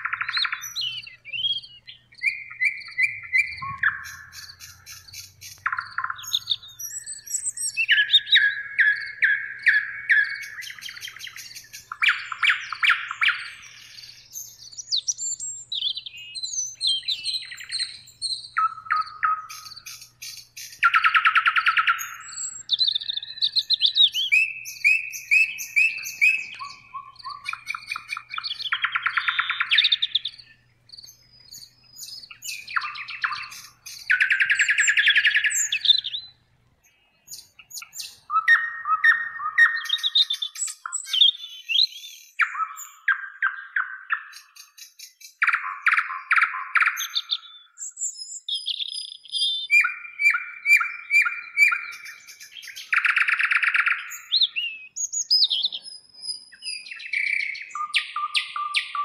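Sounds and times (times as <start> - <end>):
nightingale singing: 0.0 - 59.0.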